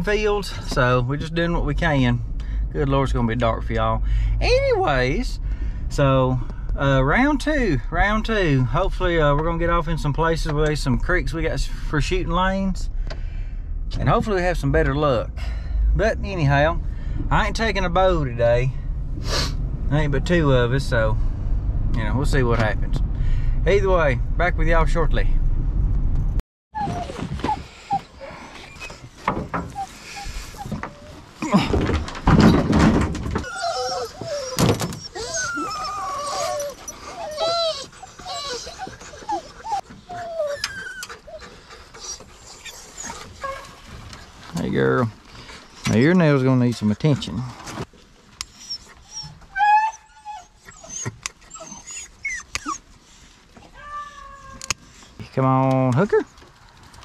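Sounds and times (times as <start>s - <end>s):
dogs whining and yipping: 26.8s - 31.4s, 33.3s - 44.0s, 45.5s - 46.0s, 48.4s - 55.2s
thumps and knocks: 29.1s - 29.8s, 30.7s - 33.5s.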